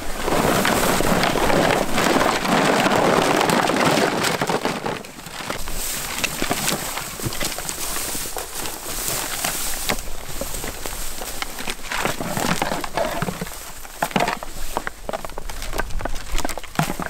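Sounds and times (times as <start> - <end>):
footsteps through dry grass: 5.4 - 17.0
plastic decoys knocking: 11.2 - 17.0.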